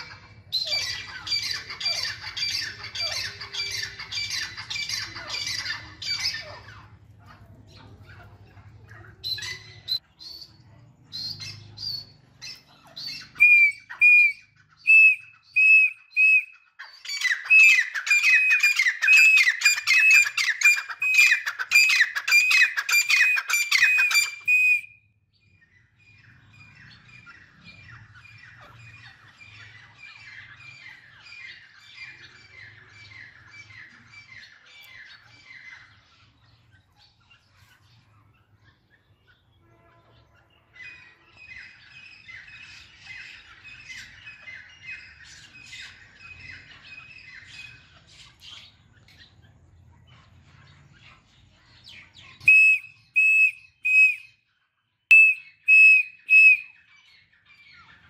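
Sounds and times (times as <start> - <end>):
francolin calling: 13.0 - 24.9, 52.4 - 54.3, 55.1 - 56.8.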